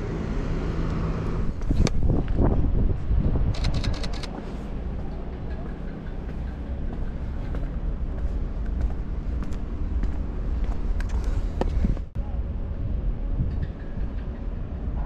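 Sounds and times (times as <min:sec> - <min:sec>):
low outdoor rumble: 0:00.0 - 0:15.0
sharp clicks: 0:03.5 - 0:04.4.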